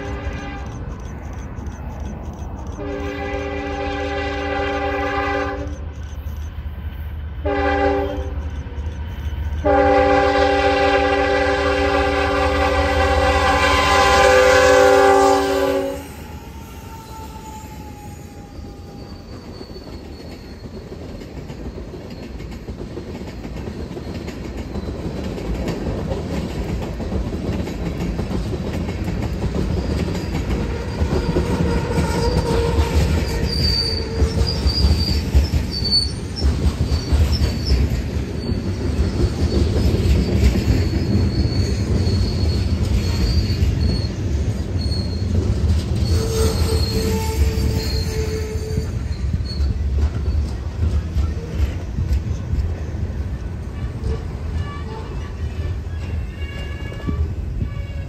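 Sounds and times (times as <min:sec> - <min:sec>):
locomotive horn blasts: 0:00.0 - 0:00.8, 0:02.8 - 0:05.8, 0:07.4 - 0:08.3, 0:09.6 - 0:16.2, 0:30.6 - 0:33.2, 0:53.6 - 0:58.0
train wheels clattering on rails: 0:00.0 - 0:15.7, 0:16.4 - 0:58.0.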